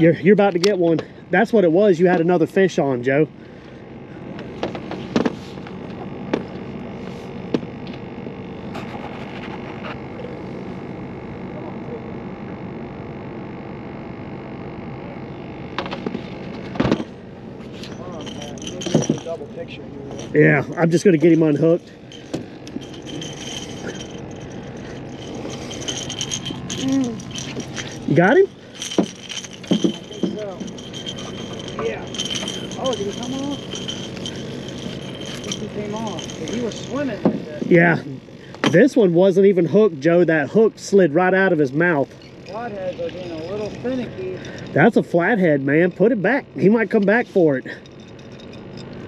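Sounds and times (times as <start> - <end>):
faint high whine: 0.0 - 49.0
steady hum: 0.0 - 49.0
fishing gear clicks and knocks: 17.7 - 37.8.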